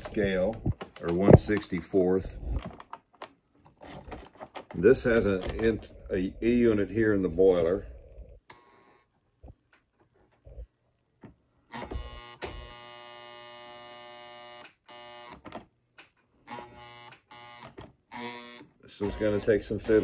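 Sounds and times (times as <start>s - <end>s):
toy locomotive electric buzz: 11.7s - 15.4s, 16.5s - 20.0s.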